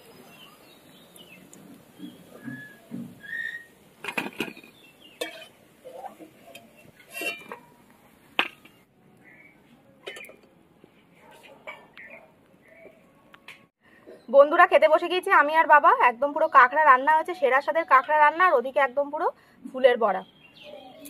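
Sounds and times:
metal spoon clinking and scraping: 5.2 - 7.7.

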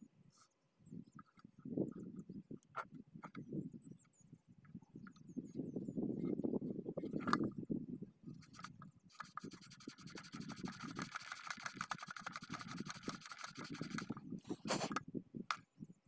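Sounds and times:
handling rustle: 8.3 - 15.0
rapid scratching on metal: 8.4 - 14.9.

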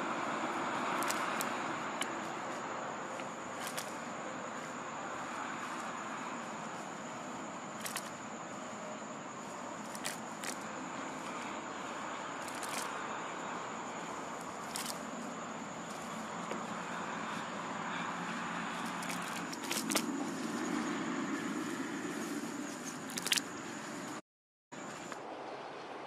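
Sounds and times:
steady outdoor hiss: 0.0 - 24.2, 24.8 - 26.0
grass stems snapping: 0.9 - 2.3, 3.1 - 4.0, 7.8 - 8.2, 9.8 - 10.6, 12.4 - 13.0, 14.6 - 15.0, 18.8 - 20.1, 23.0 - 23.5.

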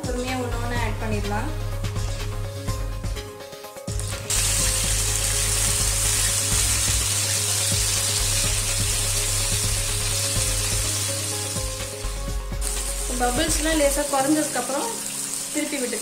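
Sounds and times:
oil sizzling while deep-frying: 3.9 - 16.0.

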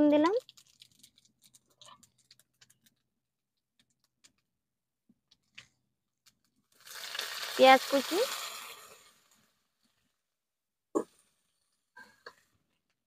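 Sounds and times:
seeds spluttering in hot oil: 6.7 - 10.0.

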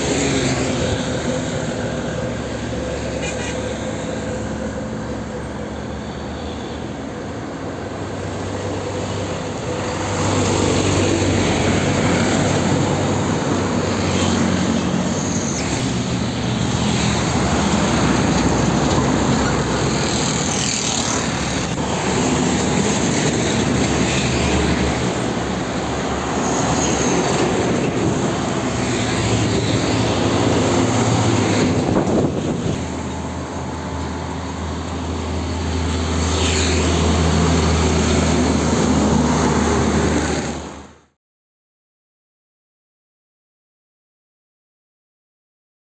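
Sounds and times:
heavy diesel trucks passing: 0.0 - 41.1.

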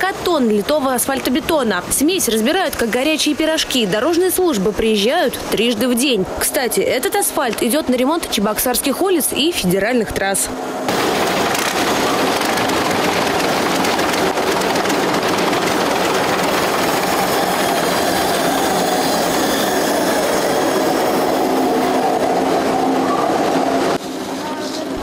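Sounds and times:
tractor diesel engine running: 10.9 - 18.8
asphalt plant machinery: 10.9 - 20.2.

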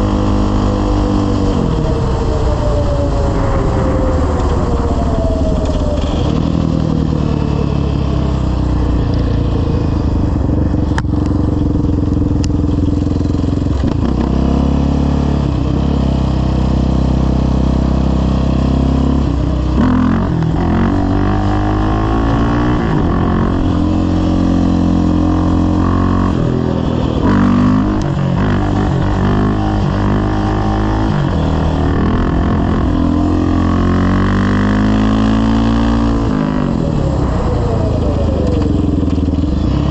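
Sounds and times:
quad engine revving: 17.1 - 39.9.

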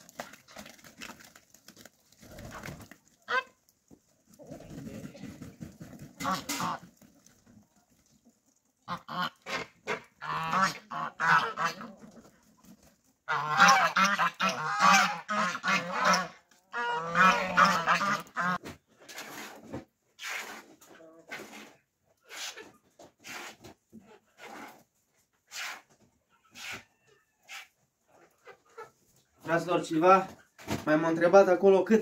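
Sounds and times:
geese honking: 3.2 - 3.6, 6.2 - 6.9, 8.8 - 12.0, 13.3 - 18.6.

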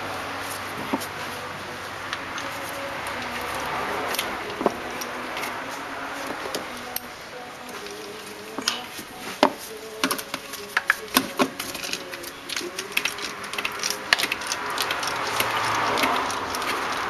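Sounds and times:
ratchet wrench clicking: 10.0 - 17.0.

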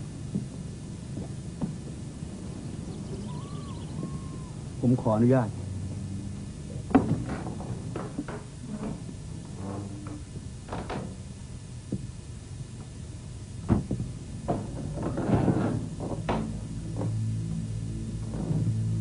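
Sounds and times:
low hum: 0.0 - 19.0
wooden knocks and thuds: 6.9 - 9.2, 13.6 - 17.2.

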